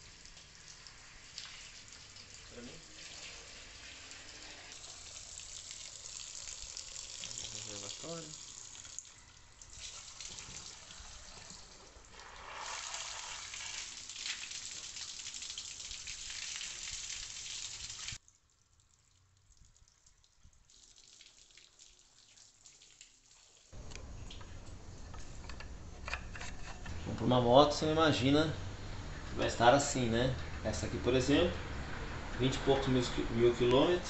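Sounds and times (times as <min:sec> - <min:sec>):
water splashing on engine and floor: 0:00.0 - 0:25.2
faint hiss: 0:02.4 - 0:08.7, 0:10.0 - 0:15.0.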